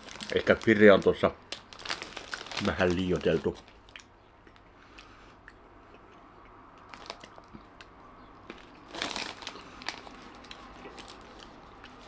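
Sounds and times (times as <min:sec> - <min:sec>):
foil bag crinkling: 0:00.0 - 0:04.0, 0:06.9 - 0:07.5, 0:08.5 - 0:12.0
crunching snack sticks: 0:00.0 - 0:06.2, 0:06.8 - 0:12.0.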